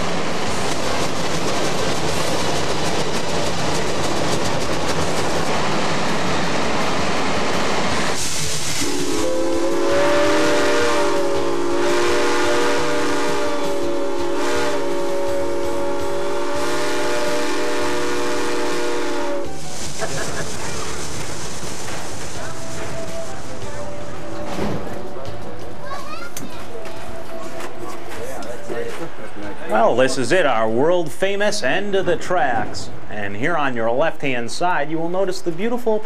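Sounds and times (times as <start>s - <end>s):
rushing hiss of steam: 5.0s - 12.2s, 12.8s - 24.2s
chime steam whistle blast: 8.8s - 19.8s.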